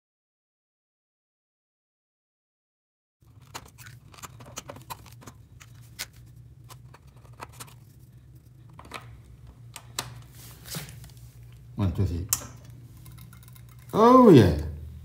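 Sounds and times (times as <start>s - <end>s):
steady low hum: 3.2s - 15.0s
small electronic parts clicking: 12.3s - 14.0s.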